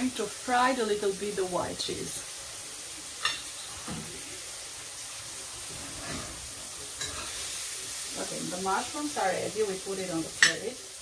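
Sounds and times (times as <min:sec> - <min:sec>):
food sizzling in a pan: 0:00.0 - 0:11.0
spoon stirring in a pan: 0:03.0 - 0:08.3, 0:10.2 - 0:10.7.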